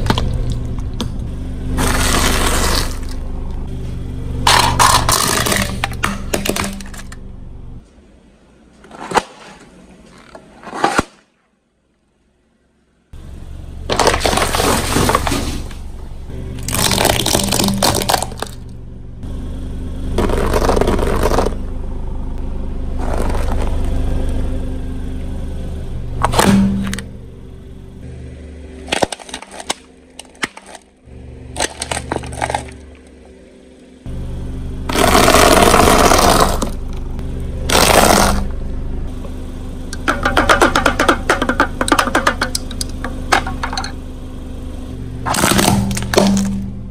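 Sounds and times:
crunching under car tyre: 0:00.0 - 0:07.9, 0:13.8 - 0:18.8, 0:20.2 - 0:21.8, 0:22.9 - 0:24.4, 0:28.0 - 0:33.5, 0:34.9 - 0:39.4, 0:45.2 - 0:46.9
car engine running: 0:00.0 - 0:10.7, 0:12.3 - 0:46.9
sharp cracks and crackles: 0:28.8 - 0:31.0.

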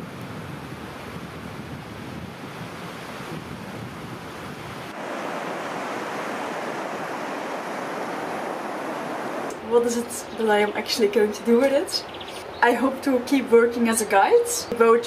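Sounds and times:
ocean waves breaking: 0:02.4 - 0:13.0.

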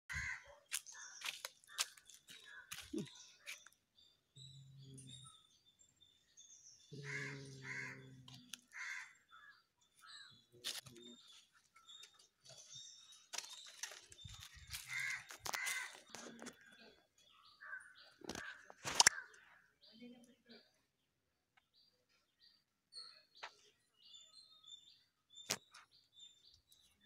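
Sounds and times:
crows cawing: 0:00.1 - 0:00.6, 0:01.2 - 0:03.1, 0:07.0 - 0:09.6, 0:14.7 - 0:16.2, 0:17.6 - 0:19.4
clicks and rustles: 0:13.2 - 0:16.6.

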